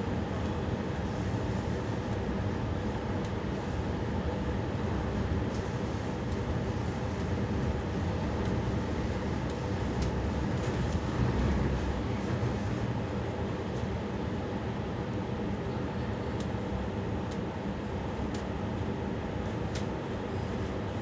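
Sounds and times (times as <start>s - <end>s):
train wheels rumbling on rails: 5.5s - 13.0s.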